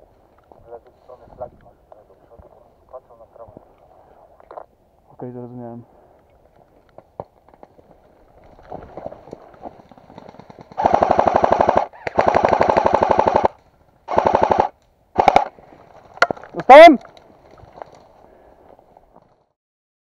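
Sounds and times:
airsoft gun full-auto bursts: 10.3 - 15.5.

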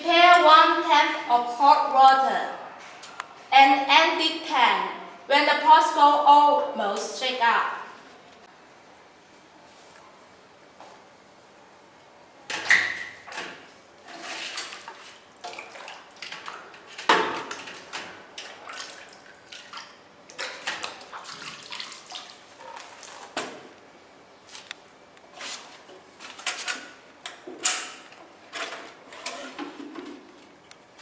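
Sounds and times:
water sloshing and splashing: 14.1 - 23.6.

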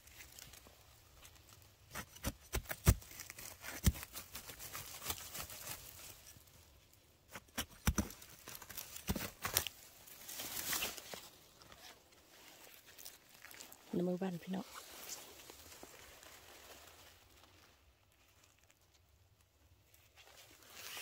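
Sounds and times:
soft rustle of leaves: 0.0 - 2.1, 2.8 - 7.4, 8.1 - 21.0
dry twigs crackling and snapping: 0.0 - 11.9, 12.6 - 14.0.

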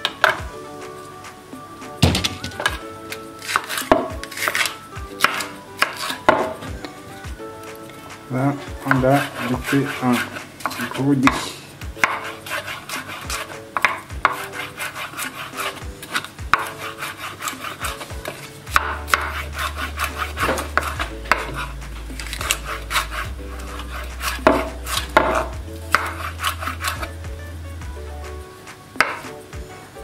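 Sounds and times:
knife chopping on wooden board: 3.4 - 6.9, 8.7 - 27.1, 29.0 - 29.4.

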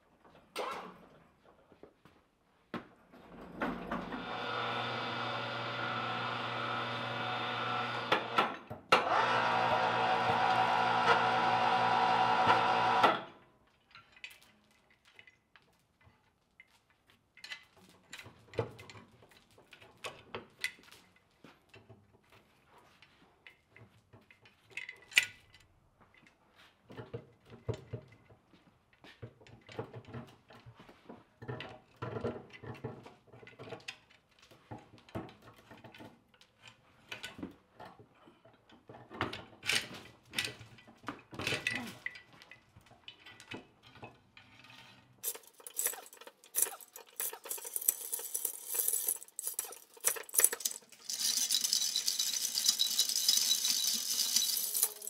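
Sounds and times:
iron chains clinking and rattling: 45.2 - 55.0.

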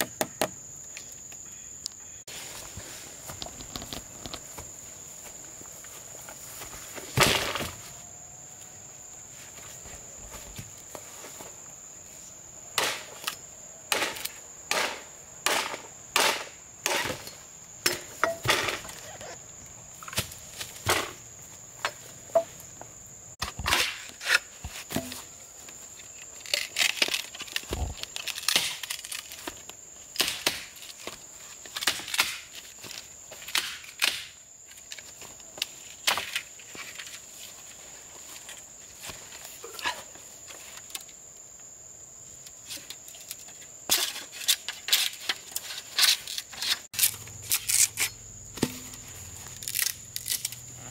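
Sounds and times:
high buzz of insects: 0.0 - 50.9.

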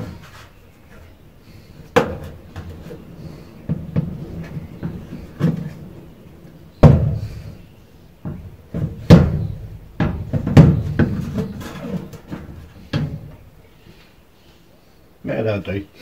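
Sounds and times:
knocks on metal roof beam: 6.8 - 7.5, 8.2 - 13.4.

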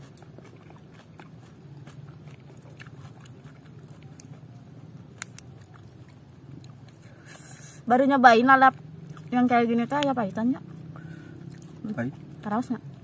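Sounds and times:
chewing and biting food: 0.0 - 7.3, 8.7 - 13.0
faint wet clicks: 2.5 - 7.1.

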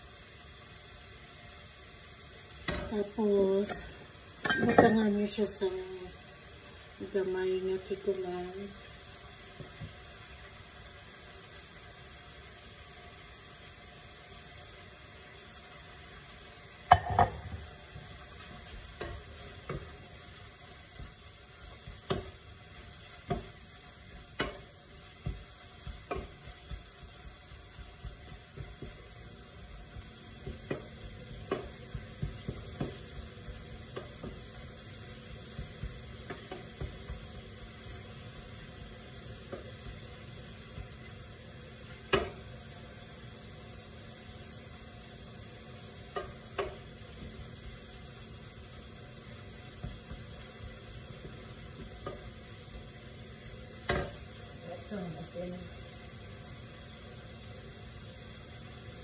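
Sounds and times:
faint sizzle: 0.0 - 59.0
spatula knocking and scraping pan: 2.6 - 5.3, 16.9 - 20.2, 20.9 - 37.5, 41.9 - 42.5, 49.4 - 52.4, 53.8 - 54.4.

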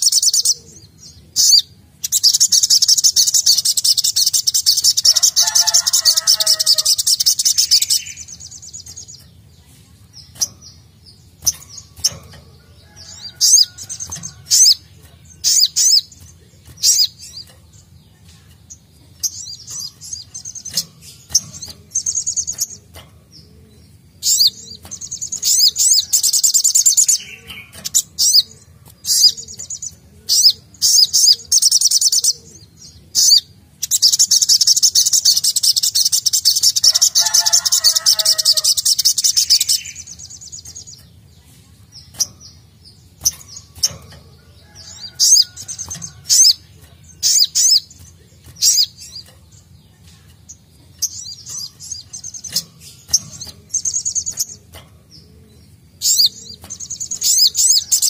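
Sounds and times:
bird trilling: 1.4 - 8.4.

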